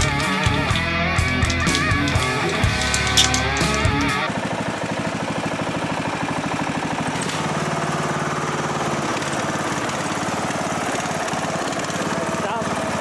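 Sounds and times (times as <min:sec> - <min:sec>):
lawn mower engine running: 0:00.0 - 0:13.0.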